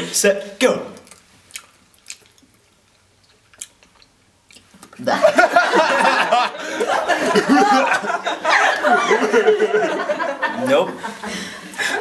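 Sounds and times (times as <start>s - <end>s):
chewing jelly beans: 1.0s - 5.1s
people laughing loudly: 5.0s - 12.0s.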